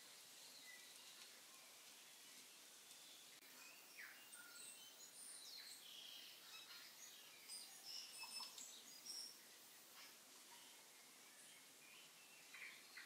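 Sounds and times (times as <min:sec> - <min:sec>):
background hiss: 0:00.0 - 0:13.0
birds chirping and whistling: 0:03.0 - 0:13.0.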